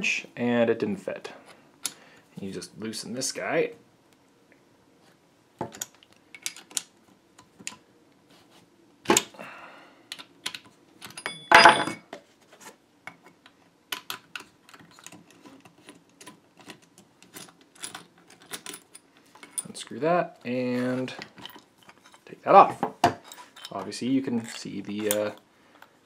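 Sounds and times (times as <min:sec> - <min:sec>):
metallic clanks: 0:11.2 - 0:12.0.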